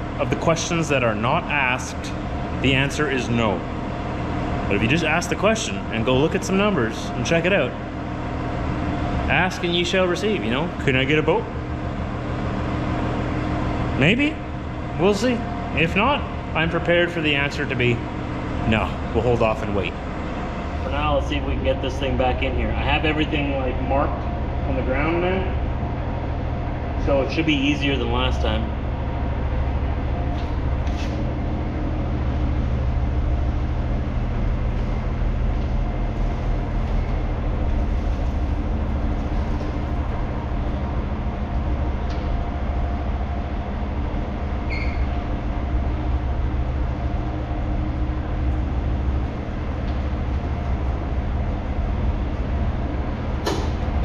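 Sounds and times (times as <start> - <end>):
brief high squeak: 44.7 - 45.1.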